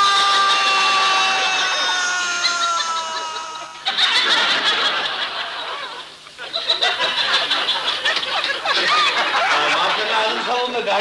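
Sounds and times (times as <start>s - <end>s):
laughter in short bursts: 2.4s - 9.8s.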